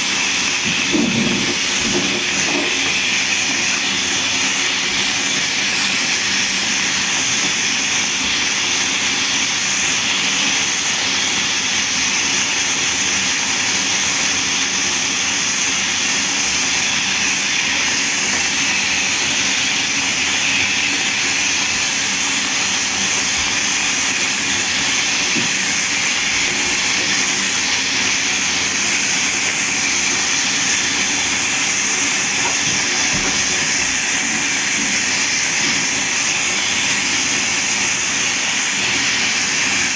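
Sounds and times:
water running into bathtub: 0.0s - 7.9s, 16.6s - 39.9s.

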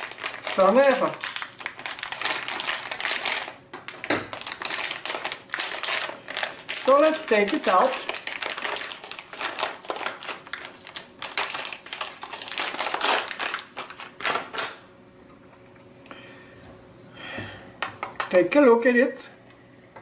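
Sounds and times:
plastic bag crinkling: 0.0s - 14.8s.

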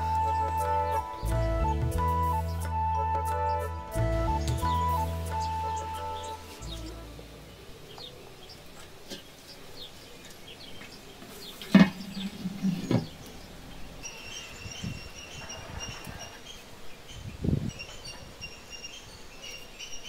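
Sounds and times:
birds chirping: 0.0s - 20.0s
insects buzzing: 0.0s - 20.0s.

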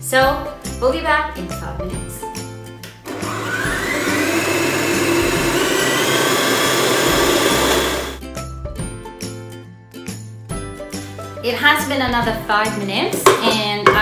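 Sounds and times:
stand mixer motor whining: 3.1s - 8.2s.

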